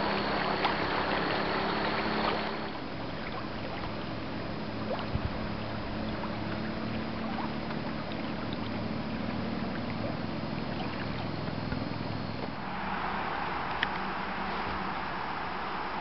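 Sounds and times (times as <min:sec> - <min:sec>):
waves lapping against a hull: 0:00.0 - 0:12.7
steady wind: 0:00.0 - 0:16.0
water rushing: 0:00.0 - 0:16.0.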